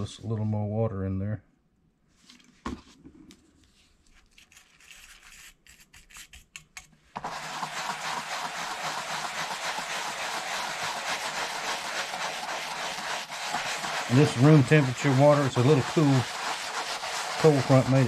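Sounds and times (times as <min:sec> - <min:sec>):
brush scrubbing leather: 0:07.2 - 0:18.0.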